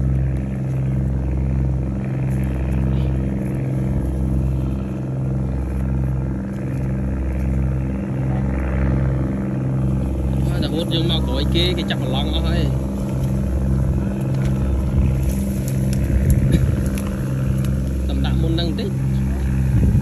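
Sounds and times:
small engine running: 0.0s - 20.0s.

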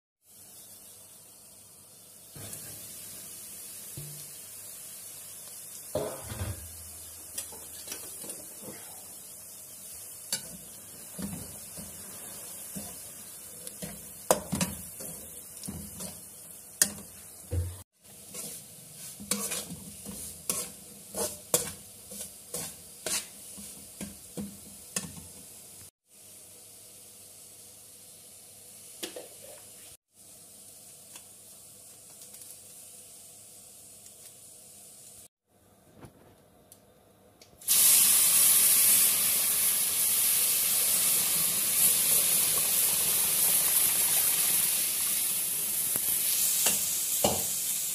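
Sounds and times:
water sizzling in a hot pan: 0.2s - 35.4s, 37.6s - 47.9s
faint hiss: 0.2s - 47.9s
metal spatula scraping a pan: 10.3s - 17.3s, 18.1s - 25.3s.

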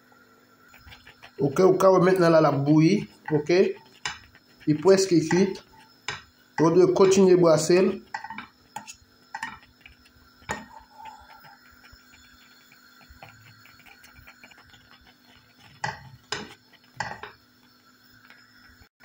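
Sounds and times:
whisk stirring thick porridge: 0.7s - 18.4s
whisk wires clinking against pan: 0.8s - 17.4s.

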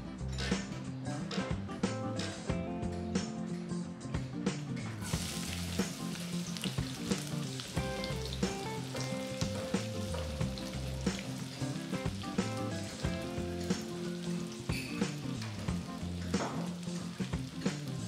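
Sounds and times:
background music: 0.0s - 18.0s
onion sizzling in oil: 5.0s - 18.0s.

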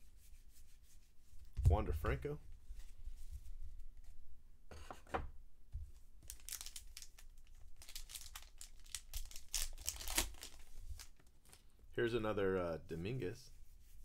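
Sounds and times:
wrapper crinkling and tearing: 6.2s - 11.6s.

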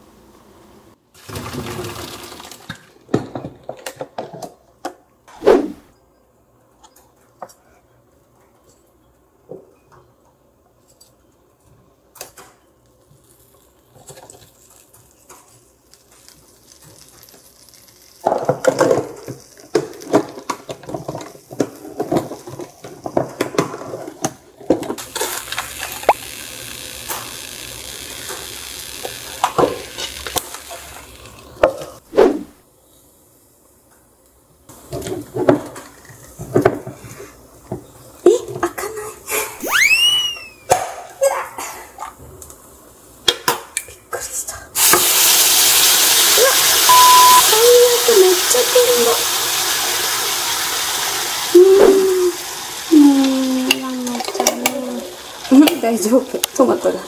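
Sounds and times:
food sizzling in a pan: 13.2s - 24.4s, 25.0s - 32.1s, 32.8s - 37.3s, 44.8s - 57.0s.

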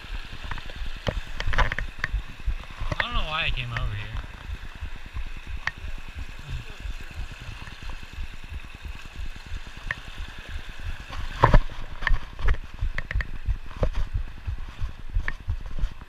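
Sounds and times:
mountain creek rushing: 0.0s - 16.0s
sharp clicks: 11.4s - 13.9s.

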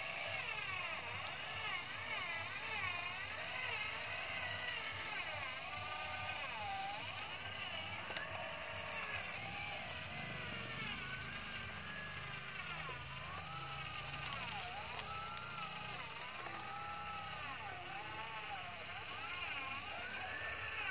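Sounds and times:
electric motor and gears whining: 0.0s - 20.9s.

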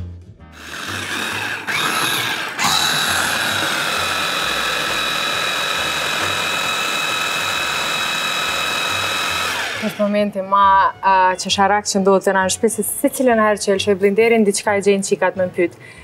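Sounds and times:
electric mini chopper whining: 0.6s - 10.3s.

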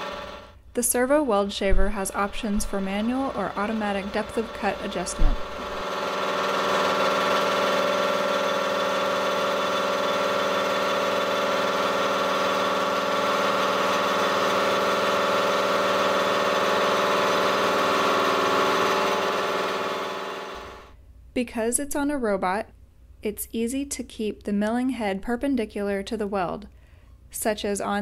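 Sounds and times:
milling head mechanical drone: 0.0s - 0.5s, 1.9s - 20.9s.

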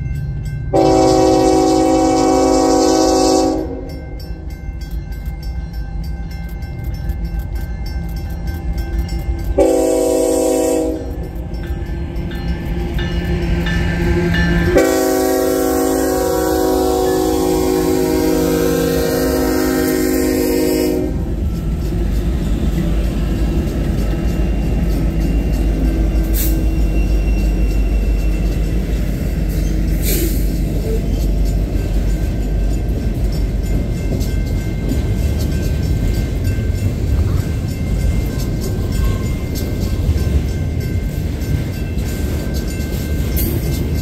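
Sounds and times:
freight train rumbling past: 0.0s - 44.0s
locomotive horn: 0.7s - 4.0s, 9.6s - 11.2s, 14.7s - 21.4s.

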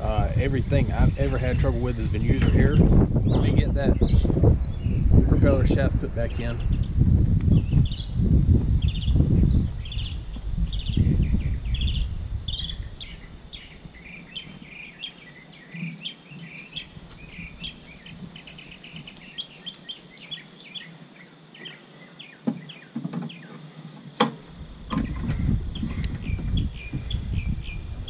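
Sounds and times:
low handling noise: 0.0s - 14.9s, 22.5s - 28.0s
small birds chirping: 0.0s - 23.9s, 24.6s - 28.0s.

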